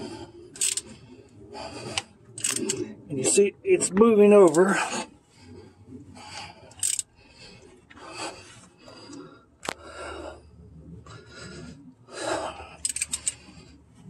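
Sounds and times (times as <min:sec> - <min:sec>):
belt rasping over pulley: 0:00.6 - 0:01.0, 0:01.8 - 0:02.8, 0:06.7 - 0:07.1, 0:12.6 - 0:13.7.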